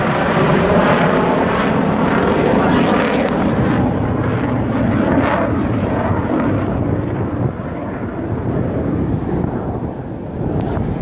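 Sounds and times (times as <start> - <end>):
airplane engine overhead: 0.0 - 11.0
wind on microphone: 0.0 - 11.0.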